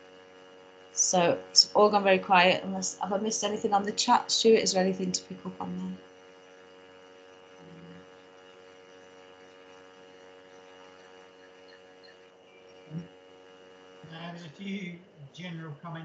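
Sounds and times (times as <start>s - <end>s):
steady electrical hum: 0.0s - 16.0s
low murmur: 7.6s - 8.0s, 14.0s - 16.0s.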